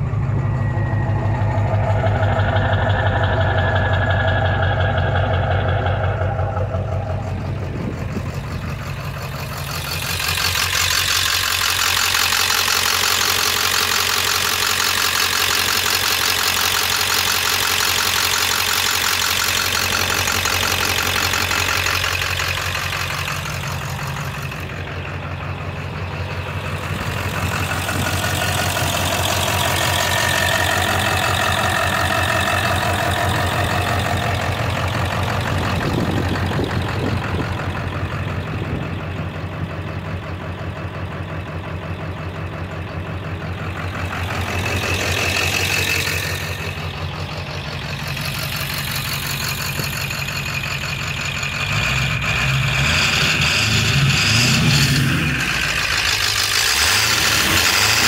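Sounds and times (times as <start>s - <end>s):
turbo whistling: 0.0s - 38.1s
diesel engine clatter: 0.0s - 58.0s.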